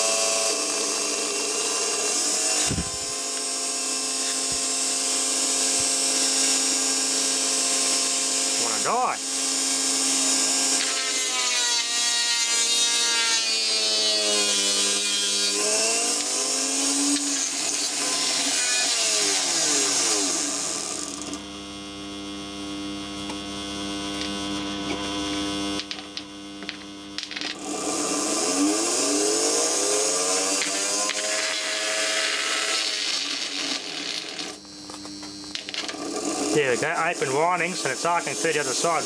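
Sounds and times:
small electric motor whining: 0.0s - 39.0s
motor brushes crackling: 30.3s - 39.0s.

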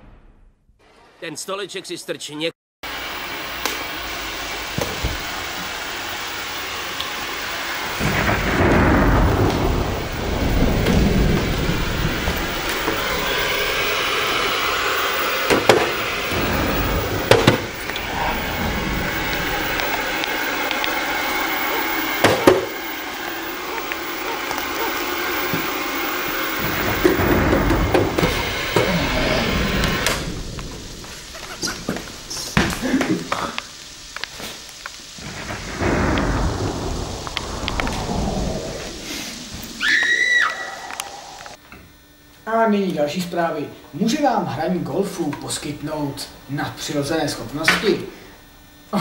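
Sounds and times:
steady rushing noise: 2.9s - 40.3s
low rolling rumble: 5.0s - 32.5s, 34.8s - 39.9s
sharp knocks: 15.5s - 18.0s.

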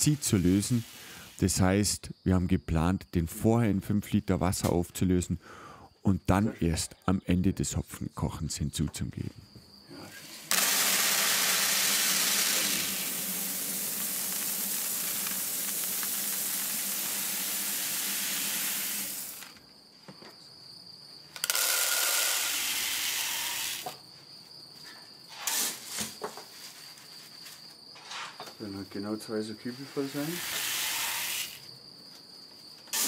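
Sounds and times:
pouring into a bucket: 10.2s - 19.5s.

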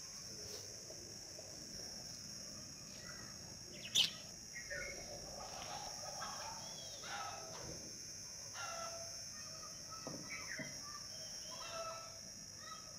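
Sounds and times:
steady high-pitched hiss: 0.0s - 12.9s
bird chirps: 3.0s - 7.2s, 10.2s - 12.1s
chickens clucking: 5.3s - 7.5s.

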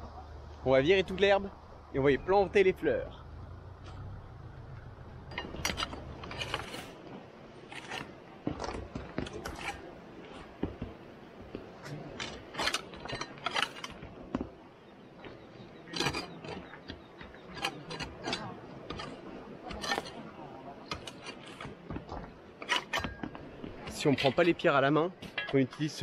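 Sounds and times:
low hum: 0.0s - 24.6s
hoe scraping stony ground: 5.2s - 14.5s, 15.2s - 24.6s.

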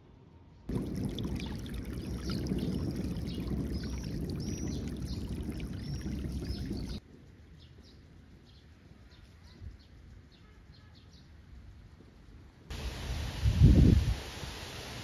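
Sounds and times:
small birds chirping: 0.7s - 7.0s
water pouring and running: 0.7s - 7.0s.

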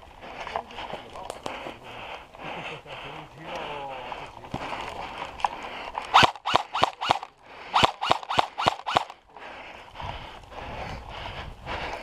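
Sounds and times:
airsoft gun shots with motor whine: 7.8s - 9.1s.

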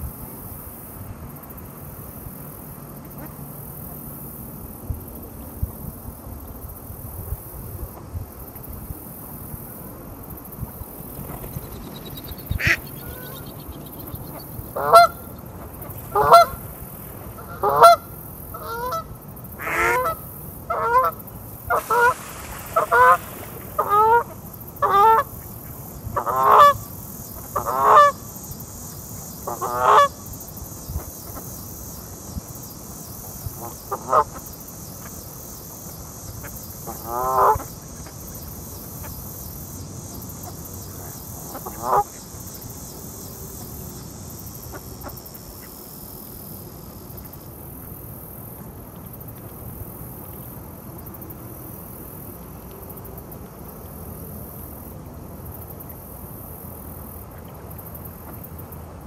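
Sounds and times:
goose honking: 14.8s - 15.2s, 16.1s - 16.6s, 17.4s - 18.0s.

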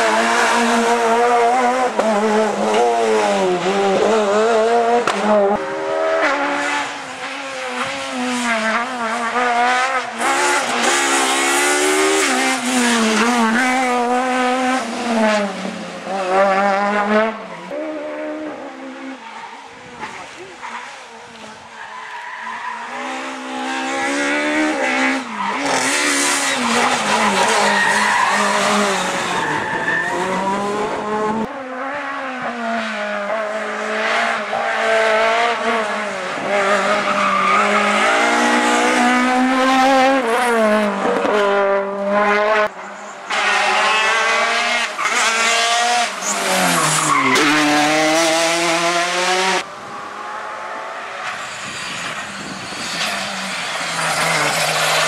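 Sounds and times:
rally cars revving past: 22.7s - 55.0s.

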